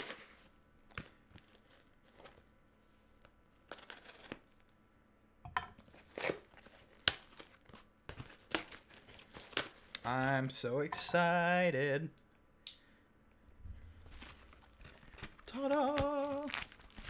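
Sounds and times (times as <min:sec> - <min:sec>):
cardboard ripping and crinkling: 0:00.0 - 0:00.5, 0:05.9 - 0:09.9, 0:14.0 - 0:17.0.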